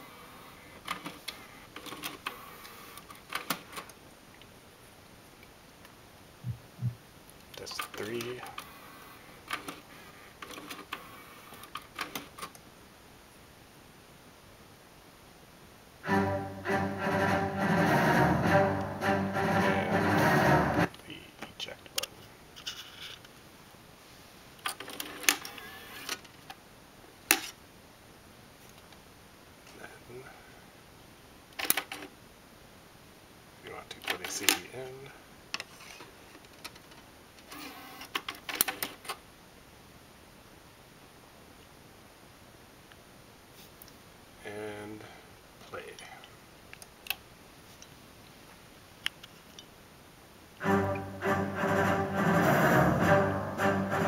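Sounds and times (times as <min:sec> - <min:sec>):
cd changer mechanism whirring: 0:37.4 - 0:38.9.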